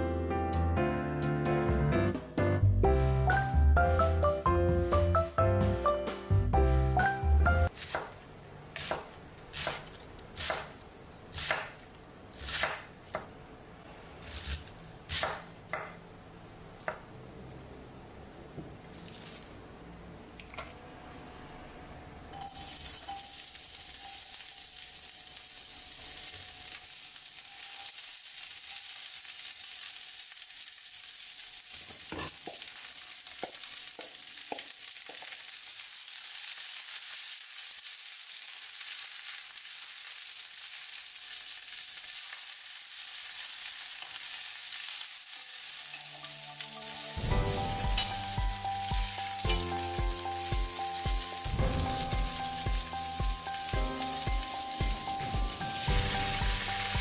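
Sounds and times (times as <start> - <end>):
background music with steady beat: 0.0 - 7.7, 46.4 - 57.0
vegetables sizzling in a pan: 22.4 - 57.0
spatula knocking on pan: 48.9 - 51.2.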